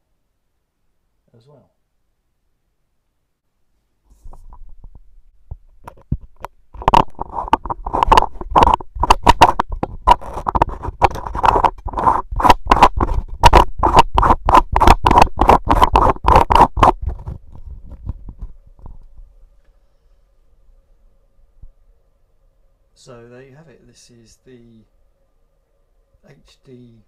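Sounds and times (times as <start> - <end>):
microphone grille scraping and clicking: 4.1 - 19.3.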